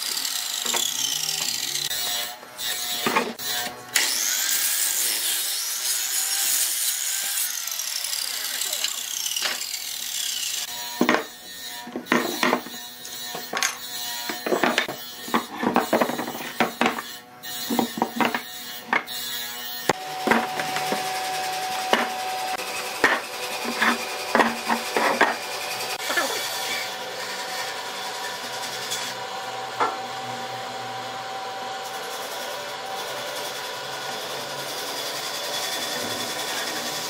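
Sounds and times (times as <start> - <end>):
scraping and knocking on wood: 3.0 - 3.4, 11.0 - 19.2, 19.9 - 21.1, 21.8 - 22.2, 23.0 - 25.4
rubbing wood: 23.0 - 25.4.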